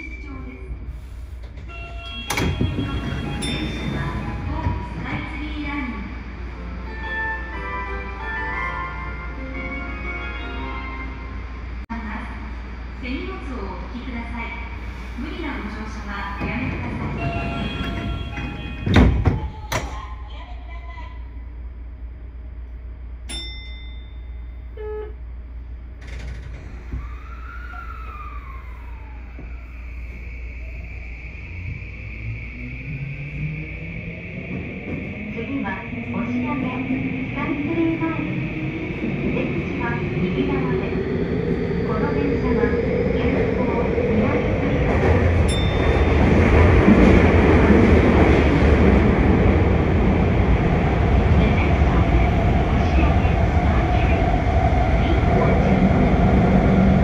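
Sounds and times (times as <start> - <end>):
single ding: 23.3 - 24.6
subway train motor whine: 24.8 - 57.0.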